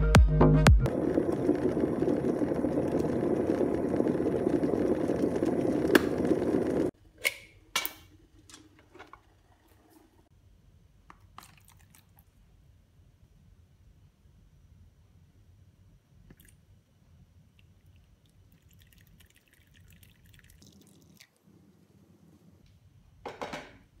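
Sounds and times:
electric kettle heating water: 0.9 - 7.0
water pouring into plastic tub: 11.3 - 12.3, 18.3 - 21.4.

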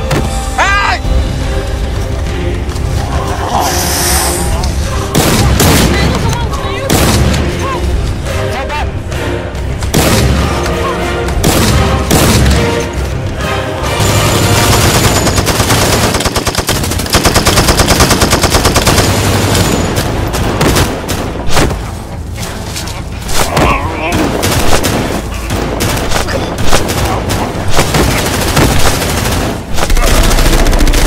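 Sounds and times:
background music: 0.0 - 31.0
automatic rifle gunfire: 14.6 - 19.6, 24.2 - 31.0.

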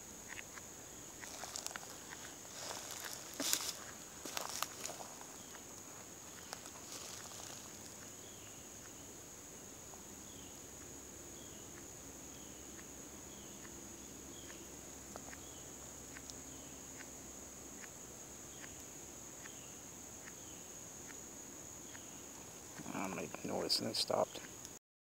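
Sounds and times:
insects buzzing: 0.0 - 24.8
footsteps in dry leaves: 1.2 - 8.0.

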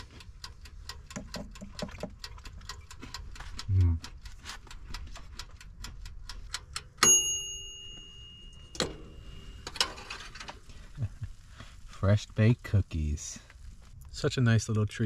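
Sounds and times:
wind-up timer ticking: 0.0 - 8.8
timer bell ding: 7.0 - 9.6
oven door click and clunk: 8.8 - 10.0.

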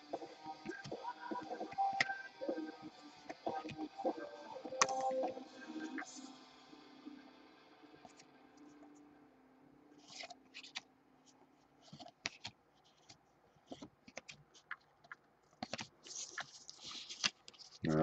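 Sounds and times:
cards sliding and clicking: 11.8 - 14.8, 15.5 - 17.8.

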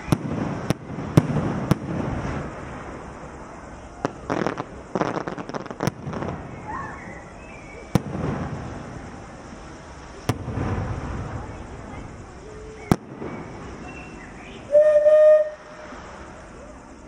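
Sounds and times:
rumbling booms: 0.0 - 14.7
fireworks bangs: 0.0 - 16.5
crackling pops: 4.0 - 6.8, 7.5 - 9.2, 12.8 - 13.5.

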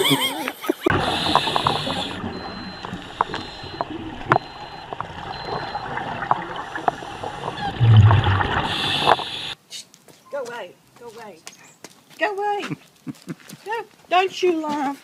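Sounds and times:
air bubbles gurgling underwater: 0.9 - 9.6.

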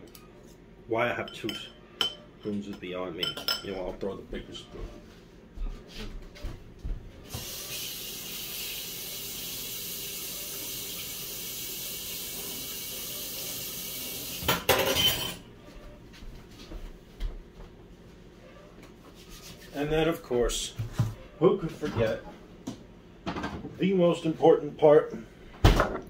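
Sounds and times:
kitchen tap running: 7.3 - 15.0.

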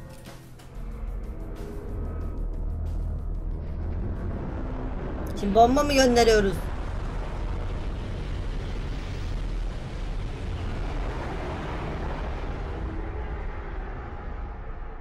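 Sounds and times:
explosion sound effect: 3.4 - 15.0.

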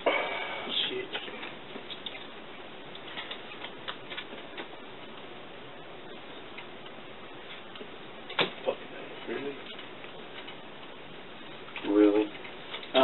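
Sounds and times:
steady hiss: 0.0 - 13.0
playing cards clicking and tapping: 1.1 - 5.2.

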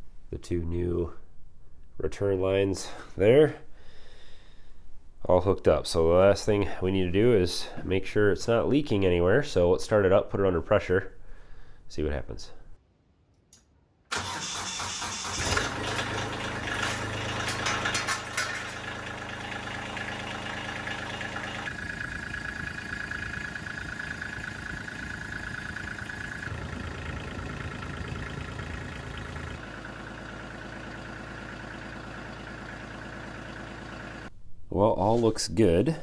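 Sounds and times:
tractor diesel engine idling: 14.2 - 34.3.

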